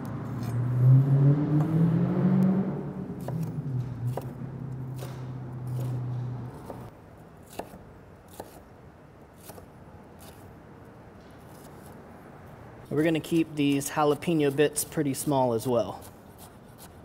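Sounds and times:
knife slicing on wooden board: 3.2s - 8.6s, 9.4s - 10.5s.

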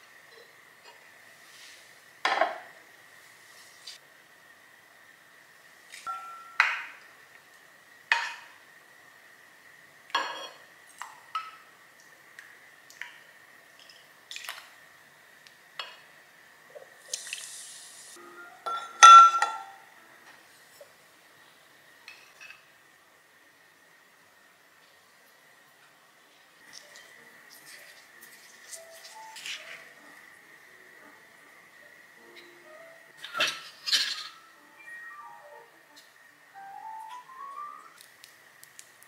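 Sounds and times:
spoon clinking on bowls: 6.1s - 6.8s, 18.6s - 19.8s
liquid pouring hiss: 17.0s - 18.2s.

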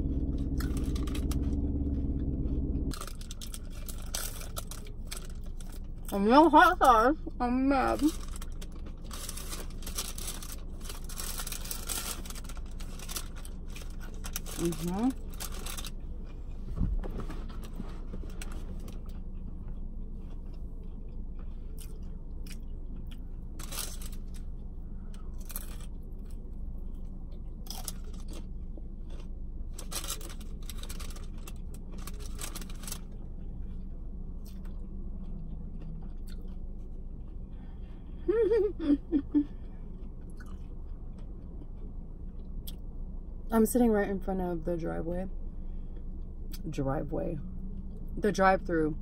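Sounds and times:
person chewing and crunching food: 0.0s - 6.4s, 7.2s - 43.3s
steady low hum: 0.0s - 49.0s.

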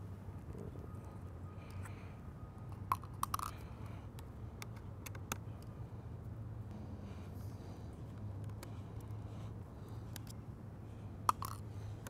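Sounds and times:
low hum: 5.8s - 12.0s.

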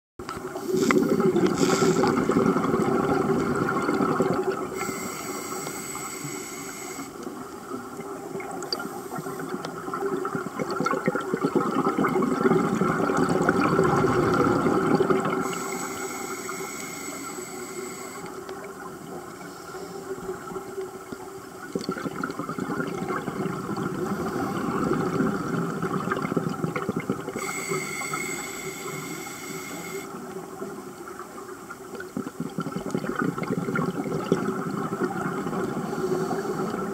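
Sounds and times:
exhaled bubbles underwater: 0.3s - 36.9s
regulator inhalation hiss: 0.6s - 2.2s, 4.7s - 7.3s, 15.4s - 18.4s, 27.4s - 30.2s.

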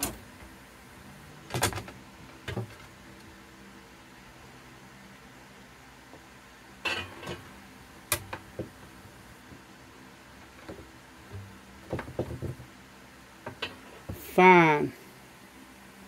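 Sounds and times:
rods knocking on wood: 10.6s - 12.7s.

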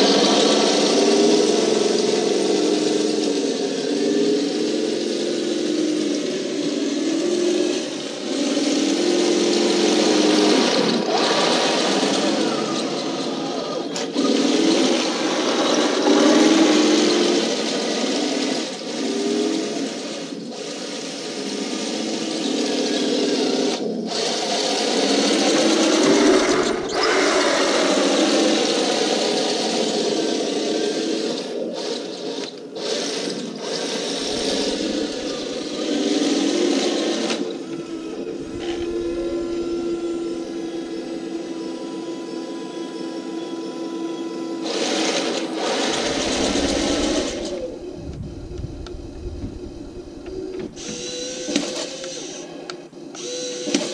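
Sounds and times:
model tank motors whining: 0.0s - 53.9s.

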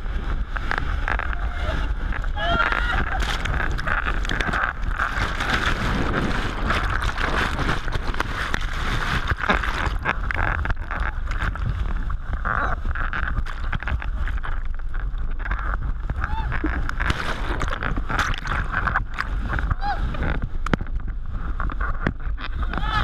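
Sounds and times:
waves splashing on camera: 0.0s - 10.2s.

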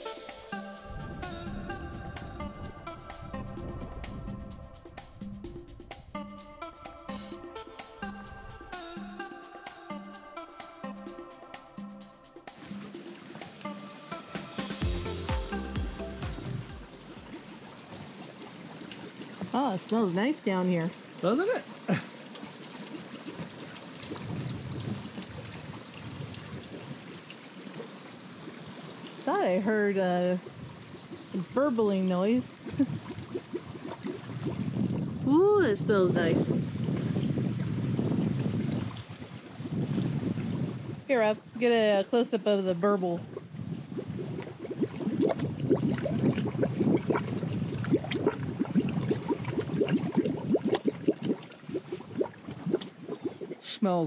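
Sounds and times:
gas bubbling through water: 0.0s - 6.3s, 21.8s - 28.3s, 29.2s - 35.4s, 43.1s - 54.0s.

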